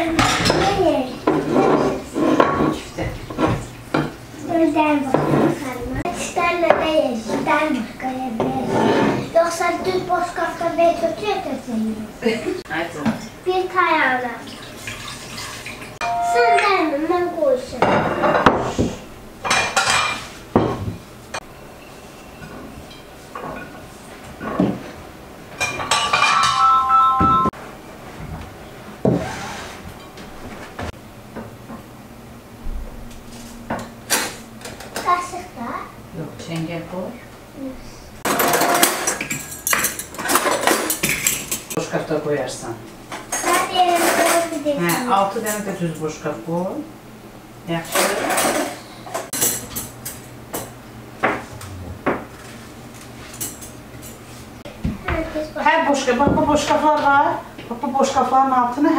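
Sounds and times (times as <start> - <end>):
dishes clinking: 0.1 - 4.2, 16.0 - 16.8, 17.8 - 18.7, 19.4 - 21.5, 25.6 - 27.6, 38.2 - 41.8
tableware knock and scrape: 0.2 - 4.1, 5.1 - 5.6, 8.4 - 9.3, 25.6 - 27.5, 38.3 - 41.8
cutlery rattling in drawer: 38.3 - 41.8.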